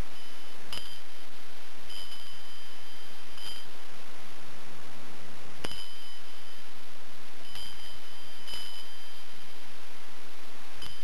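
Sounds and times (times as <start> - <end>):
small bell ringing: 0.0 - 1.3, 1.9 - 3.8, 5.6 - 6.7, 7.4 - 9.6, 10.8 - 11.0
steady hiss: 0.0 - 11.0.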